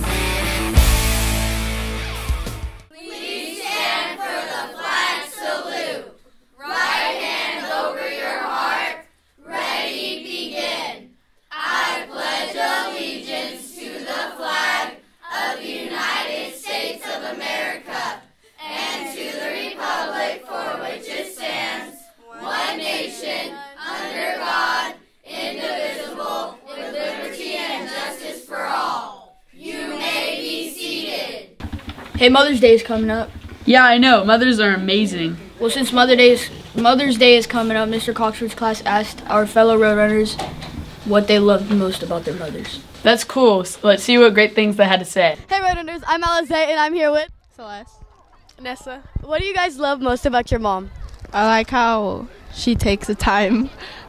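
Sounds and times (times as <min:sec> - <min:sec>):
group of voices reciting in unison: 0:02.9 - 0:31.6, 0:35.2 - 0:43.1.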